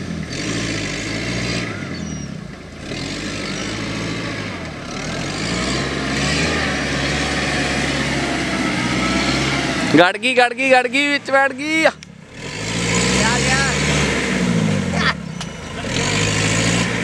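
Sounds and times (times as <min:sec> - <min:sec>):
engine revving in mud: 0:00.0 - 0:17.0.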